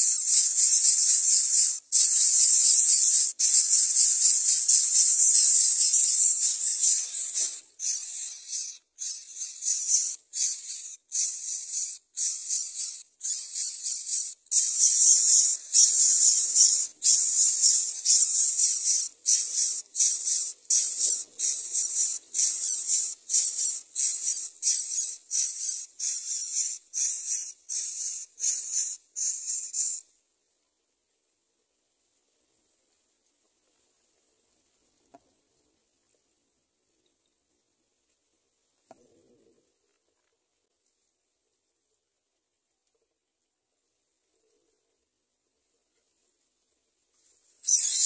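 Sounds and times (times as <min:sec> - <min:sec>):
nestlings raspy hissing calls: 0:00.0 - 0:30.0, 0:47.6 - 0:48.0.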